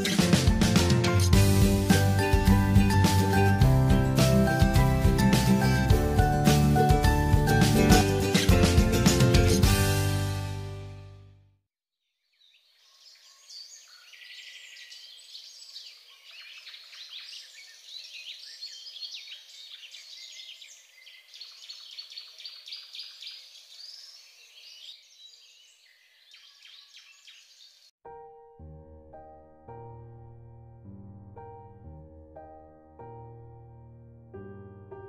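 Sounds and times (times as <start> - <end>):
birds chirping: 12.4 - 27.9.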